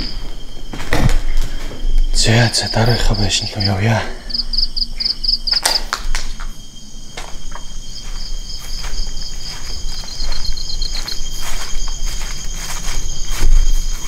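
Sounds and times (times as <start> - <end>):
insects chirping in trills: 0.0 - 14.0
footsteps: 5.5 - 14.0.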